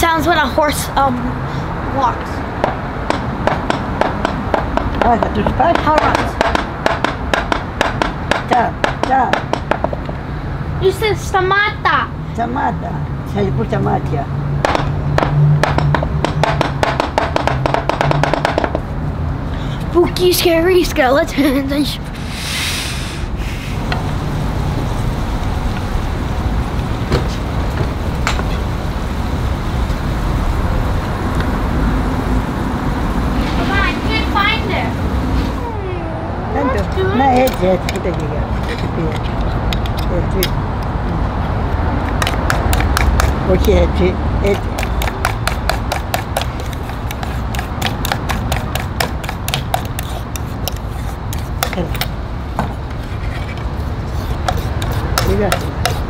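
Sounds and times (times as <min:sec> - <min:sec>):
utensil beating batter in metal bowl: 0:44.5 - 0:51.8
spatula tapping against pan: 0:44.7 - 0:50.8
spatula stirring greens in pan: 0:44.8 - 0:51.7.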